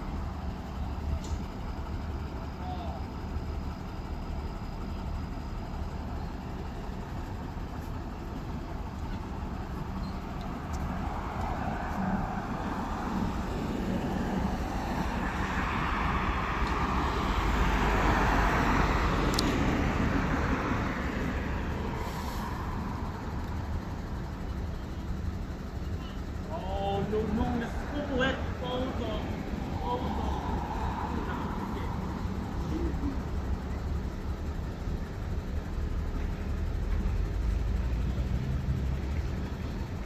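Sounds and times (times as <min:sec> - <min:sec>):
vehicle passing close by: 0:10.6 - 0:23.6, 0:27.6 - 0:33.3.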